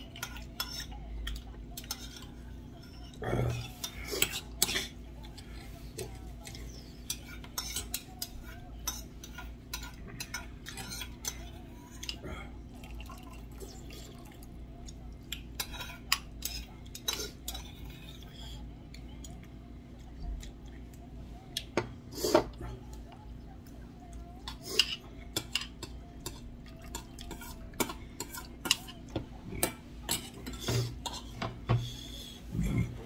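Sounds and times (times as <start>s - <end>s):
metal utensils clicking and scraping: 29.6s - 31.4s.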